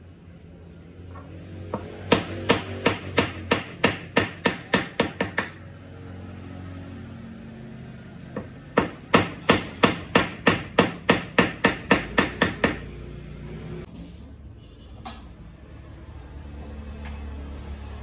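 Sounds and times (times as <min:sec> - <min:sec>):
hammer striking metal on anvil: 0:01.7 - 0:05.7, 0:08.4 - 0:12.9.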